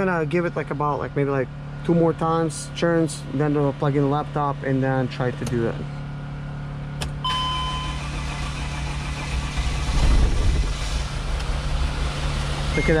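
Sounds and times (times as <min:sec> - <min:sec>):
diesel engine cranking and starting: 0:03.6 - 0:13.0
short dashboard beep: 0:07.2 - 0:08.2, 0:12.7 - 0:13.0.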